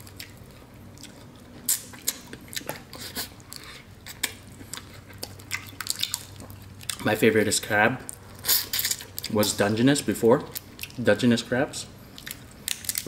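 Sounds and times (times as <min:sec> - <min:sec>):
close-up chewing: 0:00.0 - 0:07.1, 0:12.1 - 0:13.0
crab shell cracking: 0:05.2 - 0:06.5, 0:12.2 - 0:13.0.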